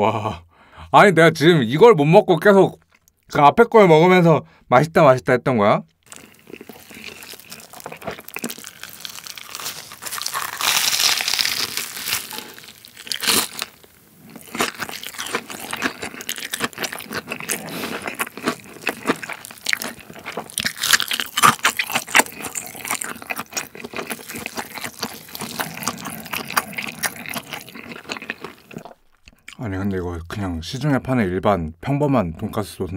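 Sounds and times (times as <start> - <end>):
crunching and chewing fried food: 6.0 - 29.6.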